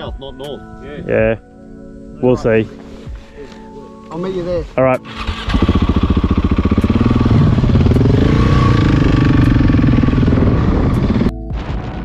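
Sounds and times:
motorcycle engine accelerating: 5.1s - 11.9s.

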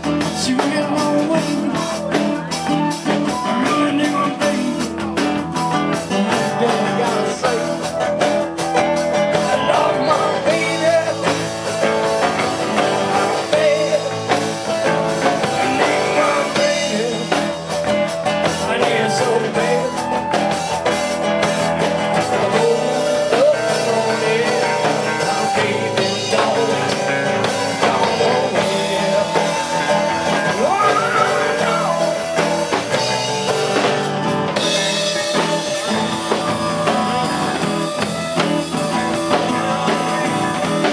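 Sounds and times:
man singing: 0.0s - 34.0s, 34.6s - 40.9s
acoustic guitar: 0.0s - 40.9s
bass guitar: 0.0s - 40.9s
drum kit: 0.0s - 40.9s
flute: 27.8s - 40.9s.

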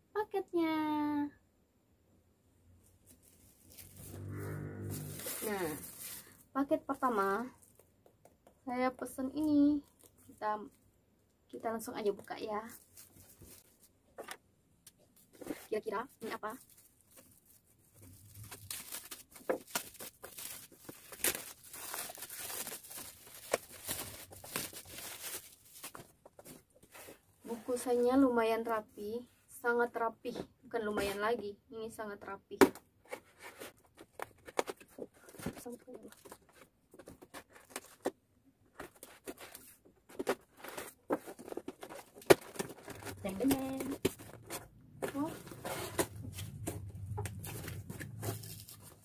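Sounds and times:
plastic bag crinkling and tearing: 3.2s - 6.4s, 16.4s - 26.5s, 47.3s - 49.0s.

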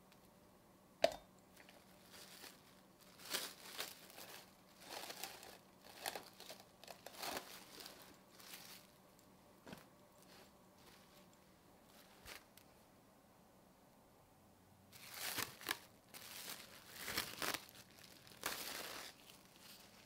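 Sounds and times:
cling film crinkling: 1.6s - 9.0s, 15.0s - 20.0s.

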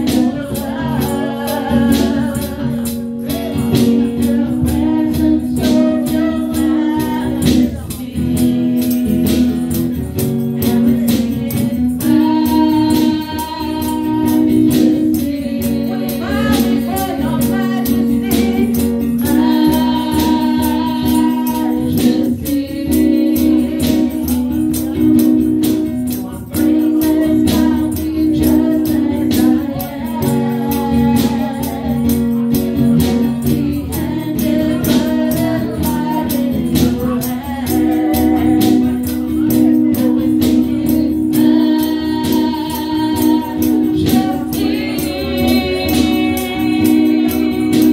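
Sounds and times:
percussion steady beat: 0.0s - 47.9s
woman singing lead vocal: 0.0s - 47.9s
backing singers: 40.5s - 47.9s.

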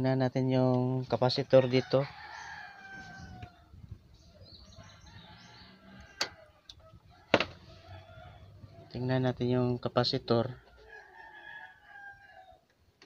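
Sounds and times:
faint bird chirping: 2.2s - 9.6s.

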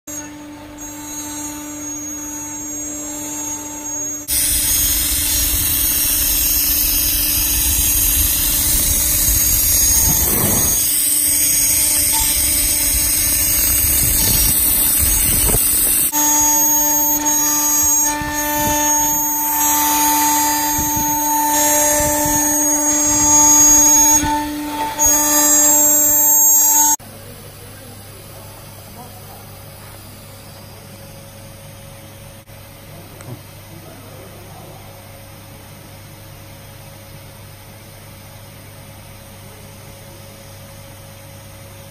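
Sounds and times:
router spindle whine: 0.1s - 27.0s
bit cutting acrylic: 4.3s - 27.0s.

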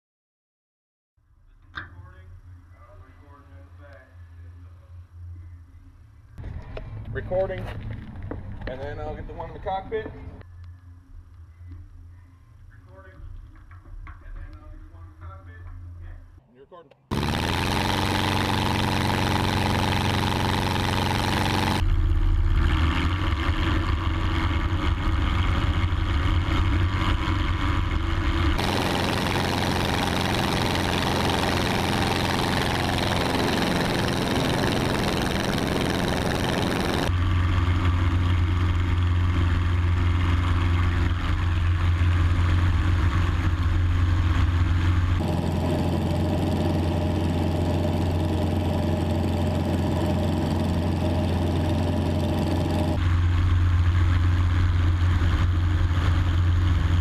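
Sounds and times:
propeller plane engine running: 6.4s - 10.5s, 17.1s - 57.0s.

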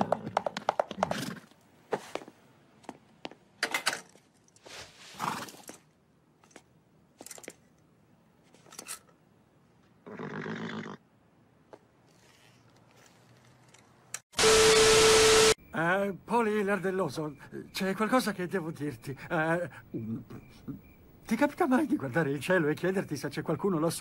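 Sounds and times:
horse grunting and snorting: 10.0s - 11.0s.

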